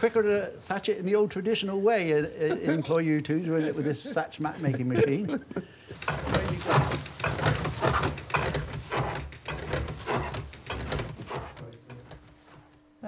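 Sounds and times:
mat-making machine clattering: 5.9 - 12.6.

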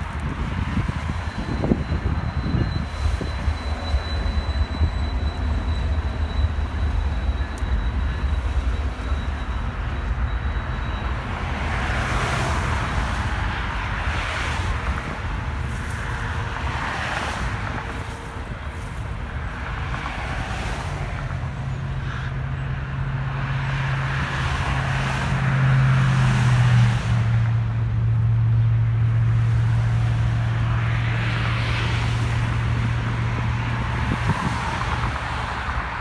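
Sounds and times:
passing vehicle engine hum: 0.0 - 36.0.

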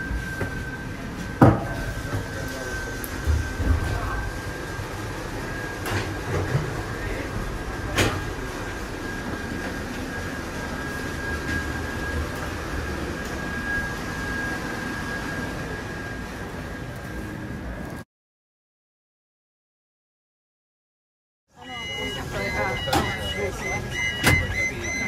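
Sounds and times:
funicular car rumbling: 0.0 - 18.0, 21.6 - 25.0
high whine: 21.5 - 25.0.

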